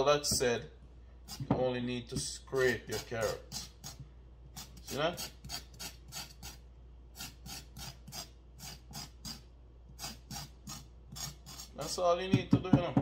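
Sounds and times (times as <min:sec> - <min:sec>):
knife scraping carrot skin: 0:01.3 - 0:01.6, 0:02.2 - 0:04.0, 0:04.6 - 0:12.0.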